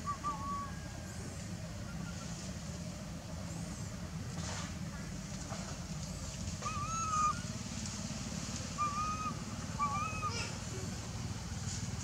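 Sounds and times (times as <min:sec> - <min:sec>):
steady low hum: 0:00.0 - 0:12.0
monkey whimpering coos: 0:06.7 - 0:07.4, 0:09.8 - 0:10.6.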